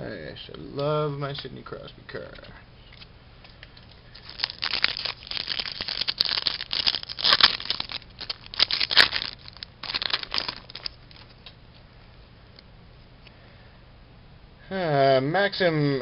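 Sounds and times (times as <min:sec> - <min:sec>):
wrapper crinkling and tearing: 0:04.1 - 0:11.5.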